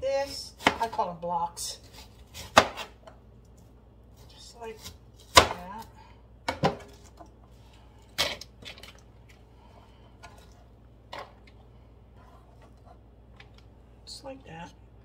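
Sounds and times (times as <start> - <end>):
knife chopping on plastic board: 0.6 - 1.0, 1.9 - 3.1, 4.8 - 5.8.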